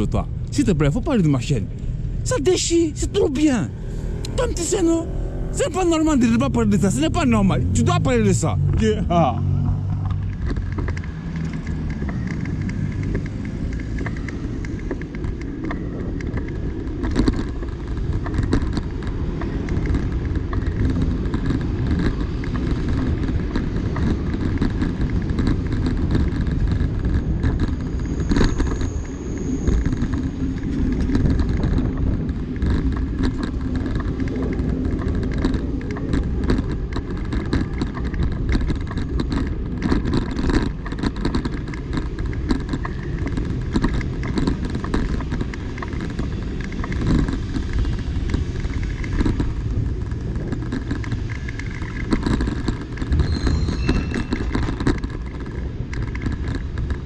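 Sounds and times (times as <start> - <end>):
wind rumble on microphone: 0.0 - 57.0
cars driving past: 0.2 - 25.7.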